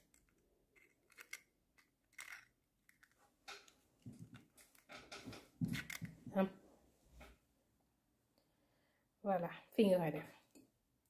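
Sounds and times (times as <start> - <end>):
eggshell clicks and scrapes: 0.0 - 6.2.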